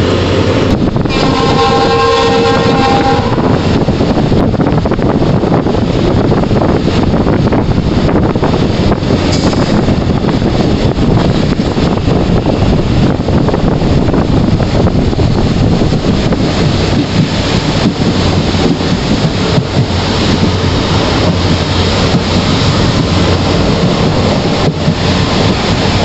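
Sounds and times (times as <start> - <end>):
train rumbling on track: 0.0 - 26.0
wind buffeting microphone: 0.0 - 26.0.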